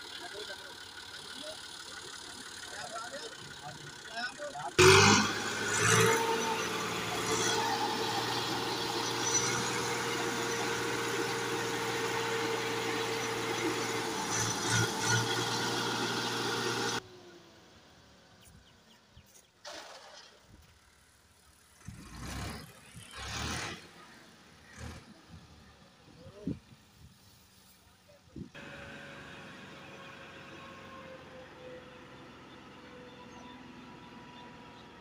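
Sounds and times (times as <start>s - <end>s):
tractor diesel engine running: 0.0s - 19.0s, 28.5s - 35.0s.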